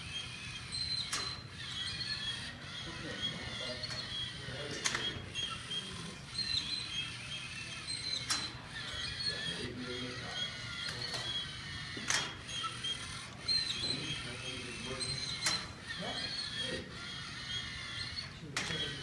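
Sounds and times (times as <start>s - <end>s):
robot motors squeaking and whining: 0.0s - 19.0s
sharp mechanical clicks: 0.4s - 2.5s.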